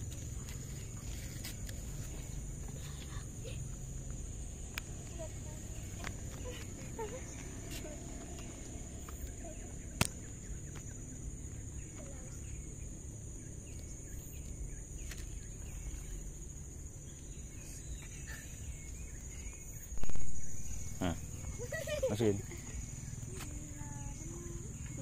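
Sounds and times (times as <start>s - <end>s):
faint bird calls: 5.1s - 25.0s.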